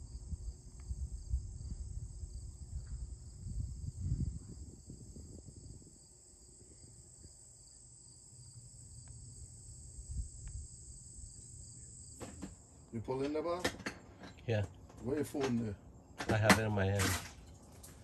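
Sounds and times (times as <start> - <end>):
crickets chirping: 0.0 - 16.4.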